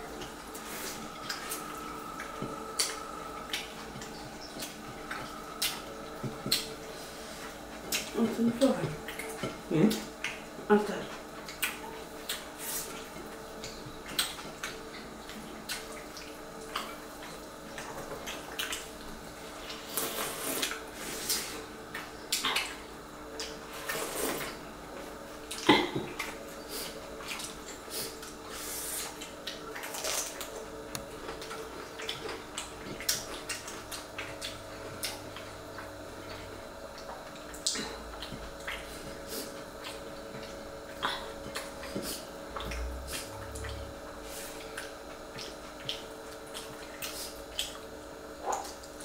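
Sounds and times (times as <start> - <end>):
faint steady hum: 0.0 - 49.0
wet chewing and lip smacks: 0.2 - 8.2, 9.0 - 10.5, 11.4 - 18.9, 29.0 - 43.9, 44.6 - 47.9.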